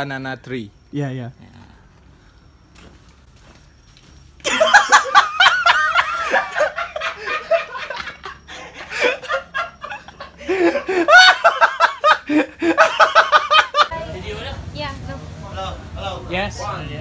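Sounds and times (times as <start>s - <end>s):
people laughing: 4.4s - 13.9s.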